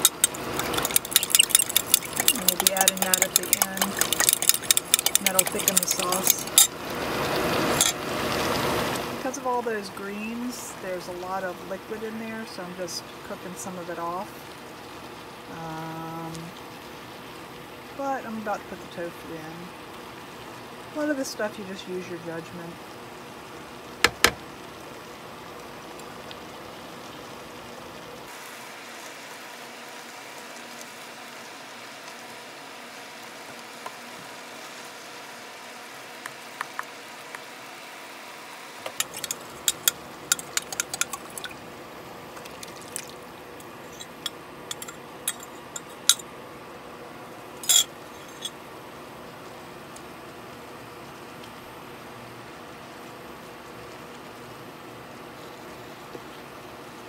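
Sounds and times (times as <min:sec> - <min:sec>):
spatula clicking and scraping: 0:00.0 - 0:06.7, 0:38.9 - 0:41.6, 0:43.9 - 0:46.2
food sizzling in a frying pan: 0:00.0 - 0:09.5, 0:22.8 - 0:46.7
spatula knocking on pan: 0:24.1 - 0:24.4.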